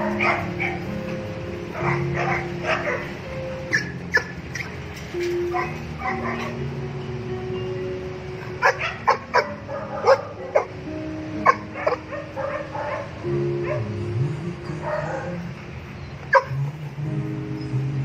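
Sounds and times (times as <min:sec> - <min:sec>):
dogs barking and yipping: 0:00.0 - 0:06.9, 0:08.3 - 0:14.0, 0:14.8 - 0:16.6.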